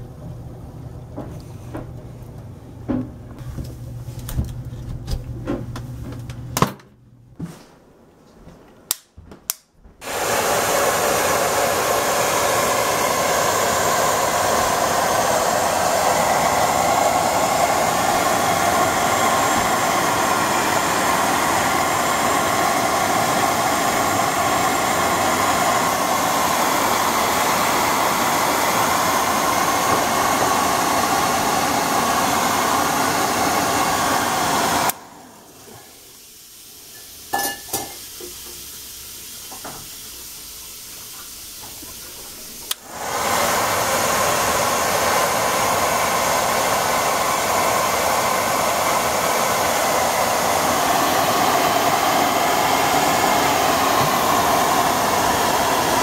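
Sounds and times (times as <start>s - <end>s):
hair dryer running: 10.0s - 38.6s, 41.6s - 56.0s.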